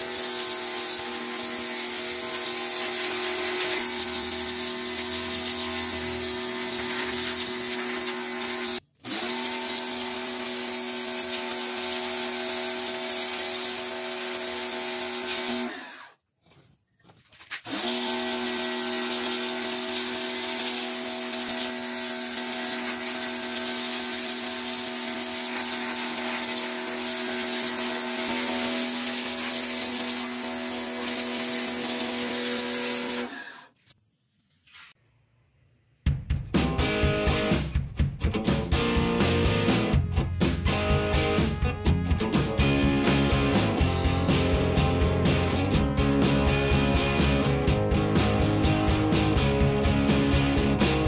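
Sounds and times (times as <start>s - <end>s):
water jet hissing on metal: 0.0s - 15.8s, 17.9s - 33.6s
pressure washer motor: 0.0s - 16.2s, 17.7s - 33.8s.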